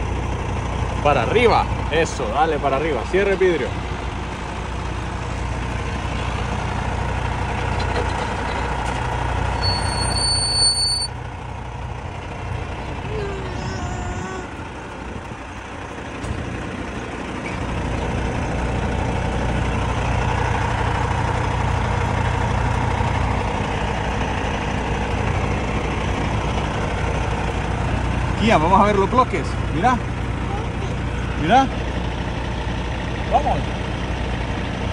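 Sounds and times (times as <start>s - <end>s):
truck engine rumbling: 0.0s - 34.9s
high electronic beep: 9.6s - 11.1s.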